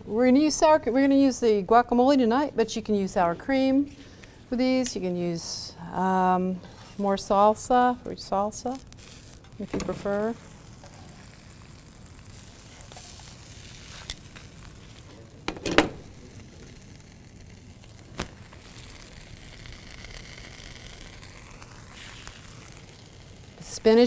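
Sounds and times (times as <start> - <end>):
food sizzling in a skillet: 8.5 - 24.0.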